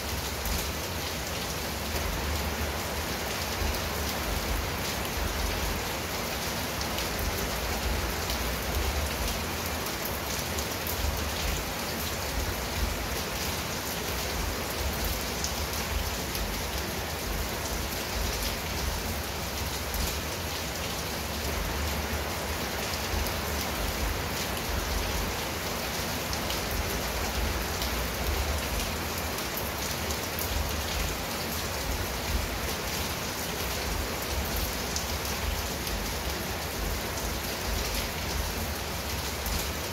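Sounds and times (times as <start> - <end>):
rain on a tiled roof: 0.0 - 39.9.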